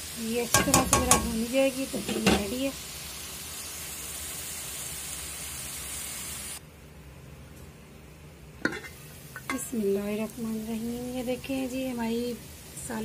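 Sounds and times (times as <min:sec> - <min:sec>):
food sizzling in a pan: 0:00.0 - 0:06.6, 0:08.6 - 0:13.0
metal pan lid knocks: 0:00.6 - 0:01.4.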